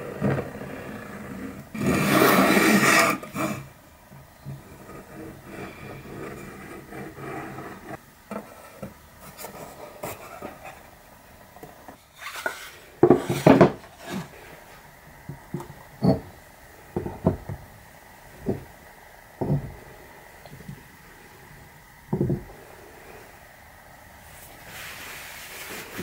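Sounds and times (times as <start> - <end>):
wooden panel scraping and rubbing: 0.0 - 3.7, 4.4 - 10.9, 12.1 - 14.6.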